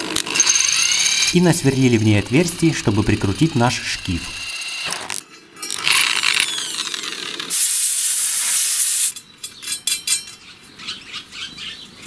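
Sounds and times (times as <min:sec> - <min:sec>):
electric drill winding down: 0:00.1 - 0:08.5
loud even hiss: 0:07.5 - 0:09.2.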